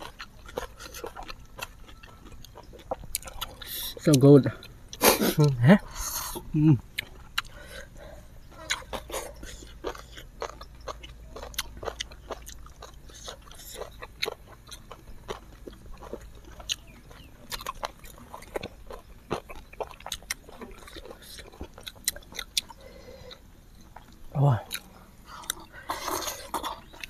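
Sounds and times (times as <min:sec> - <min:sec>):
chewing and mouth smacking: 0:00.0 - 0:05.4, 0:06.3 - 0:27.0.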